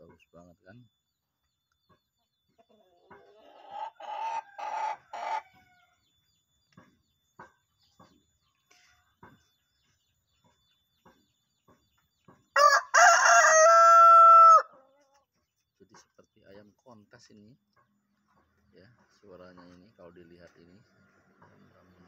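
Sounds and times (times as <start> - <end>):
rooster crowing: 12.6 - 14.8.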